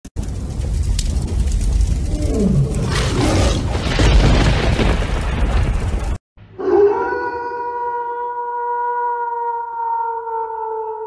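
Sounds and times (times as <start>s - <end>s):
wolf howl: 6.6s - 11.0s.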